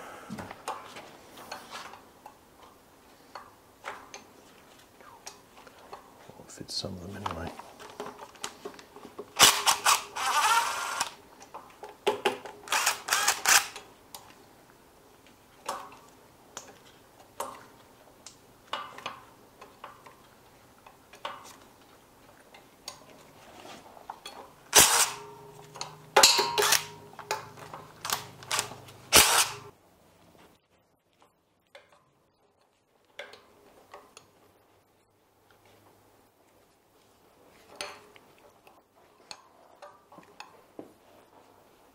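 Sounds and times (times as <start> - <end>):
cordless drill spinning nuts: 9.4 - 11.2, 12.7 - 13.8, 24.7 - 25.2, 26.6 - 26.9, 28.0 - 29.7
socket and nuts clanking on metal: 25.8 - 28.8.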